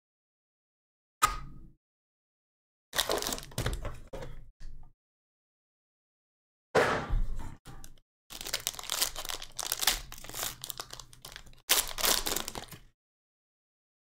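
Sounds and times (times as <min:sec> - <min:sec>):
foil pack tearing and crinkling: 0:03.0 - 0:03.6, 0:08.3 - 0:12.9.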